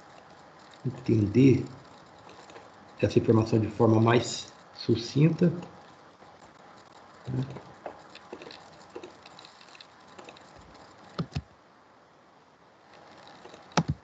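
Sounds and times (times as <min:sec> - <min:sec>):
mouse and keyboard clicks: 0:11.1 - 0:11.4, 0:13.2 - 0:14.0.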